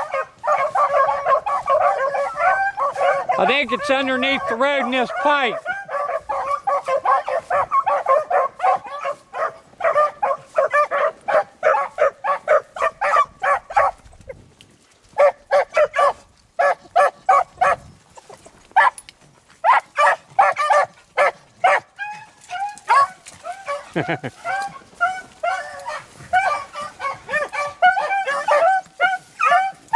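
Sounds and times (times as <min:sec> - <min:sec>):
dogs baying: 0:00.0 - 0:14.4, 0:15.1 - 0:29.9.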